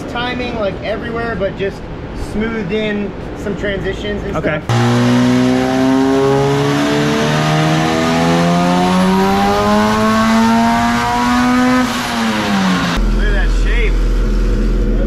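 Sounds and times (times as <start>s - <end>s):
car engine revving on dyno: 4.7s - 15.0s.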